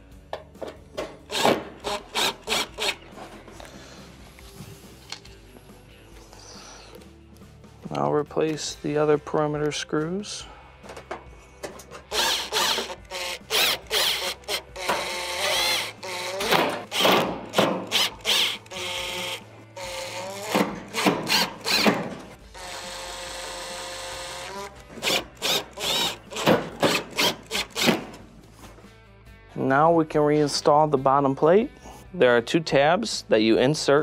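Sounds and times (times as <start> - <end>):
power drill driving screws into metal: 1.0 - 3.0, 11.8 - 28.2.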